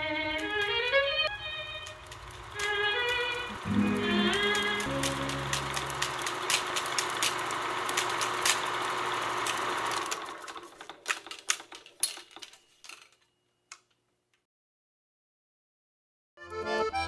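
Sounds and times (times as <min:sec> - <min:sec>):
film crackles and pops: 0:00.3 - 0:13.9
film projector running: 0:00.4 - 0:12.6.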